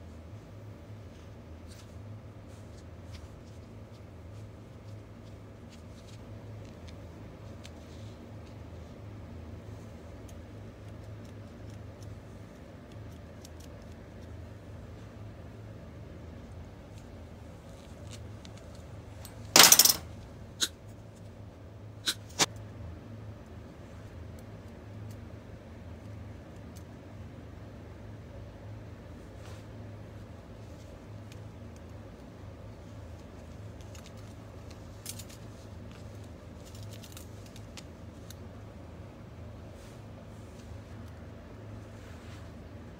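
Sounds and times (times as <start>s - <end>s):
wire pieces clinking on steel: 19.2s - 20.1s.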